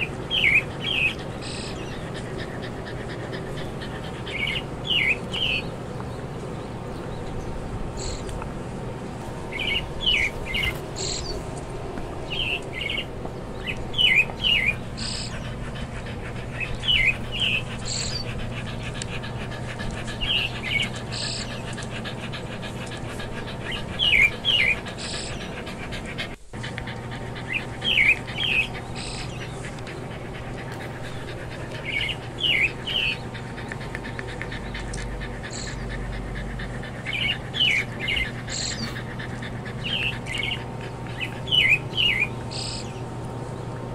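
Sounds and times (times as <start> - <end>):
birds chirping: 0.0 - 43.9
low background hum: 0.0 - 43.9.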